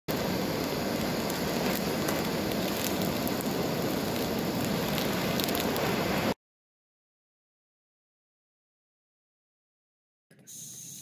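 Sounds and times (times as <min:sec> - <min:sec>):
flame gun hissing: 0:00.1 - 0:06.4
plastic burning crackles: 0:00.1 - 0:06.4.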